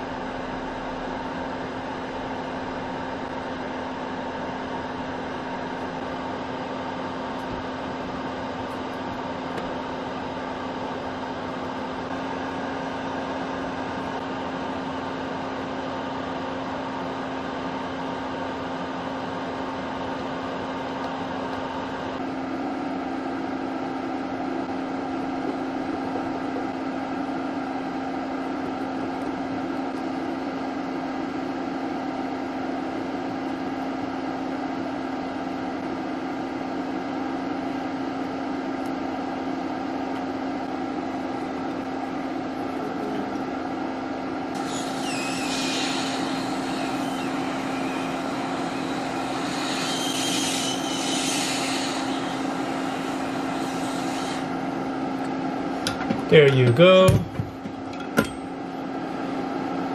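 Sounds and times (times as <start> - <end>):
electric fan humming: 0.0 - 59.9
hiss of blown air: 44.6 - 54.5.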